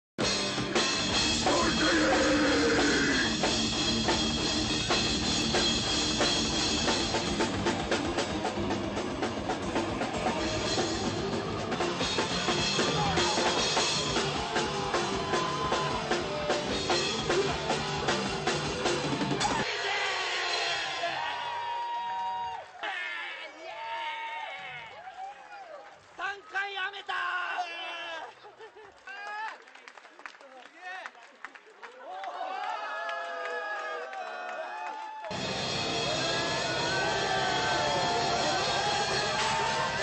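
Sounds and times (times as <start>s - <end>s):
heavy metal music: 0.2s - 21.8s, 35.3s - 40.0s
pounding drum kit: 0.2s - 21.9s, 35.3s - 40.0s.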